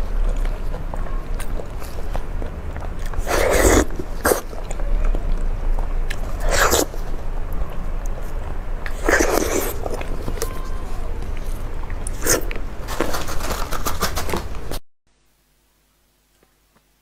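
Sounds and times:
wet mouth noises: 0.0 - 7.2, 8.0 - 10.5, 11.2 - 12.6
person eating meat off bone: 0.0 - 12.6.

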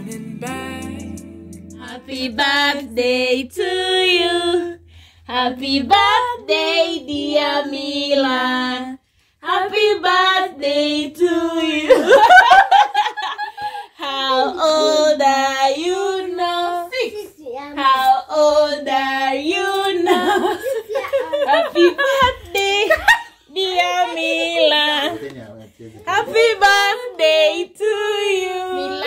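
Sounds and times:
voices singing unaccompanied: 0.0 - 12.7, 14.0 - 25.3, 25.9 - 29.0.

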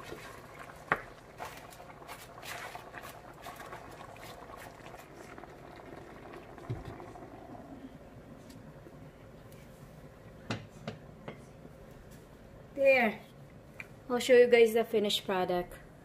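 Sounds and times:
pot bubbling at a simmer: 0.0 - 8.8.

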